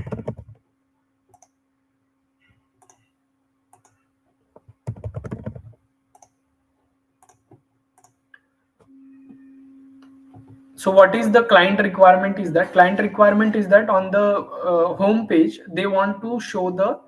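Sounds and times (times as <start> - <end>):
computer keyboard keystrokes: 0.0 - 0.6, 4.8 - 6.3
faint steady hum: 0.0 - 17.0.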